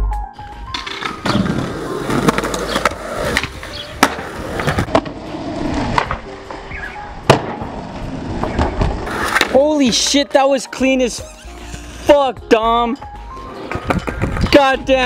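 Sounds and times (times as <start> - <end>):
skateboard wheels rolling on concrete: 0.5 - 15.0
skateboard landing slap: 0.8 - 5.2, 5.9 - 6.3, 7.3 - 7.8
skateboard clacks: 2.1 - 5.2.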